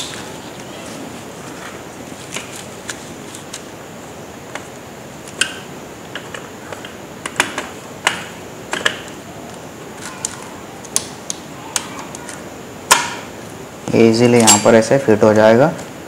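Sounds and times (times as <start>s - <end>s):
faint steady hiss: 0.0s - 16.0s
plastic parts clicking and snapping: 5.3s - 13.2s.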